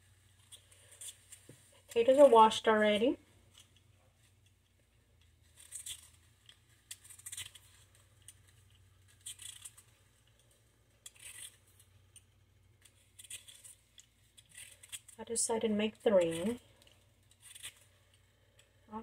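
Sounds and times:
low steady hum: 0.0s - 19.0s
peeler scraping potato skin: 5.5s - 10.4s, 11.0s - 11.9s, 12.8s - 15.2s, 15.9s - 18.2s.

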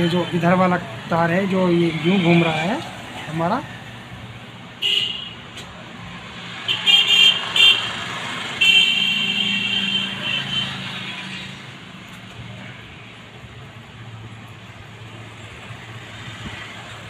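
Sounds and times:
vehicle horn honking: 4.8s - 5.4s, 6.7s - 7.9s, 8.6s - 10.8s.

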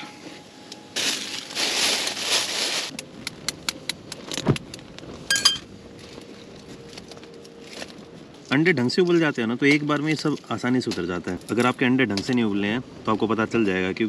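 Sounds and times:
plastic bag crinkling: 0.9s - 3.0s.

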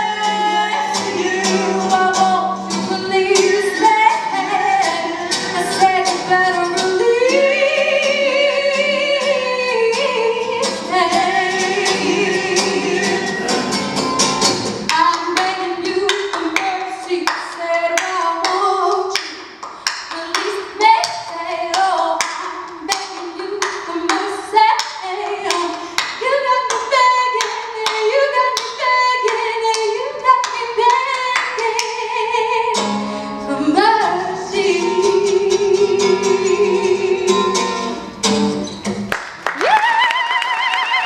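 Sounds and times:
woman singing: 0.0s - 13.7s, 14.9s - 19.3s, 20.0s - 37.8s, 39.6s - 41.0s
acoustic guitar strumming: 0.0s - 19.2s, 20.3s - 39.1s
sharp claps or taps: 39.1s - 39.8s.

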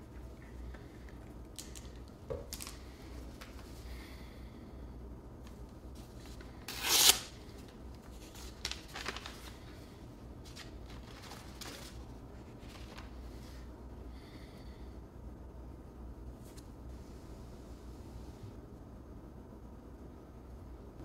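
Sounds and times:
paper rustling: 5.9s - 13.7s
paper tearing: 6.4s - 7.4s.

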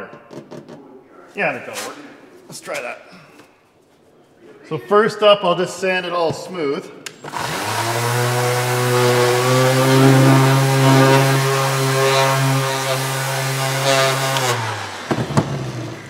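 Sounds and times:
orbital sander running: 7.3s - 16.0s.

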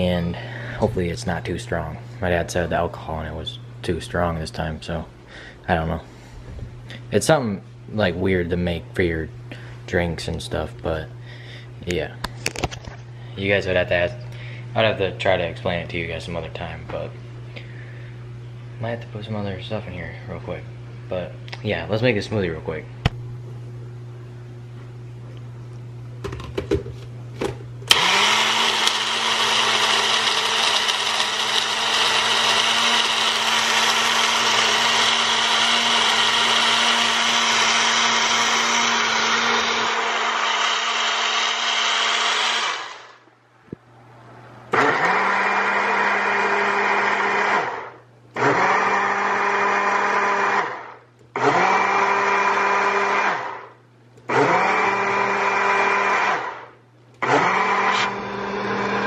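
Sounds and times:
blender blending ice: 27.9s - 43.2s, 44.7s - 53.7s, 54.3s - 59.0s.

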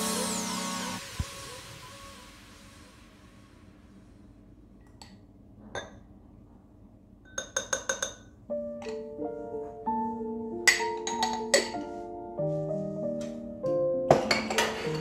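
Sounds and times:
melodic background music: 0.0s - 1.9s, 8.5s - 15.0s.

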